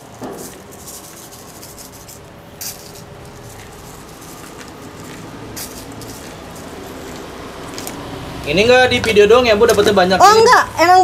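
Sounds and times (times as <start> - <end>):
sprinkles pattering rattle: 0.4 - 7.9.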